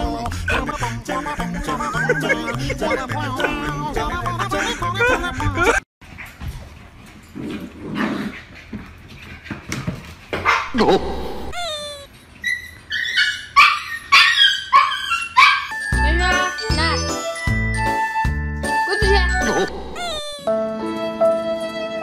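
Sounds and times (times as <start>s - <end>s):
puppies yipping and barking: 10.4s - 15.9s, 19.4s - 20.4s
puppy whining: 10.7s - 15.9s, 19.4s - 20.5s
jingly tune: 15.8s - 20.5s.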